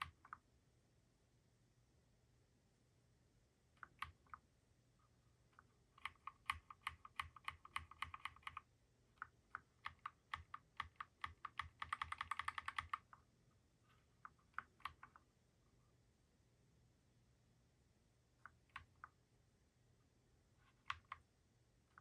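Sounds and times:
mechanical keyboard keys clacking: 6.0 - 8.6, 9.8 - 13.1.

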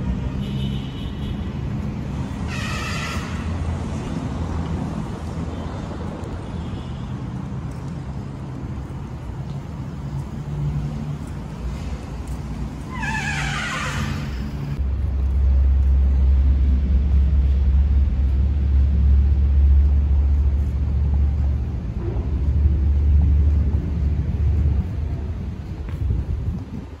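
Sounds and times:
wind buffeting microphone: 14.8 - 27.0.

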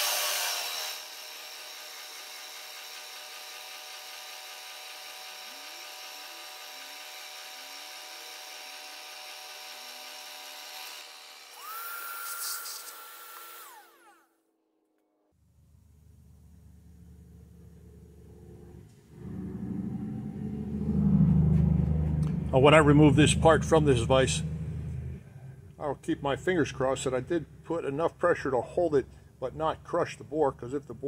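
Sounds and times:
milling machine spindle running: 0.0 - 14.2
shop vacuum whine: 3.3 - 14.3.

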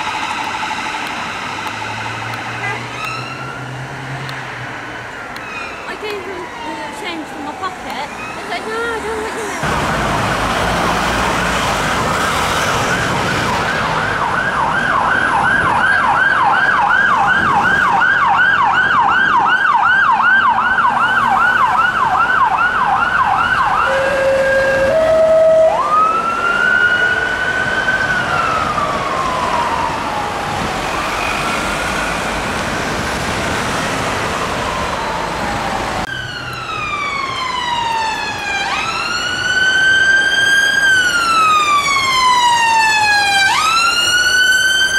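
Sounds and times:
ambulance siren wail: 0.0 - 4.0, 4.7 - 44.9
police siren yelping and wailing: 10.5 - 44.9.

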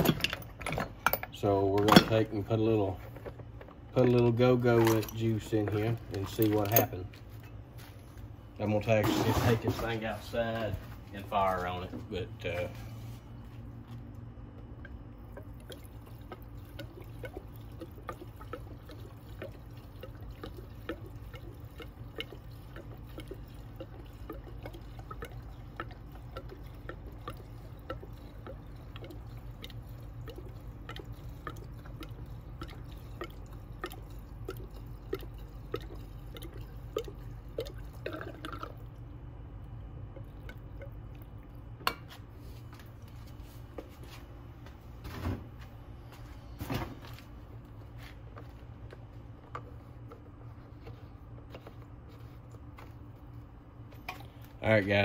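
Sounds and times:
fuel gurgling and dripping: 0.0 - 44.9, 45.7 - 55.0
steady low hum: 0.0 - 55.0.

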